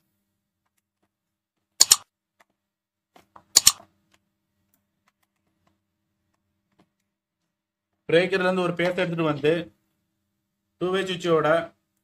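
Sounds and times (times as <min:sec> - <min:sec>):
mouse double clicks: 0:03.6 - 0:03.8.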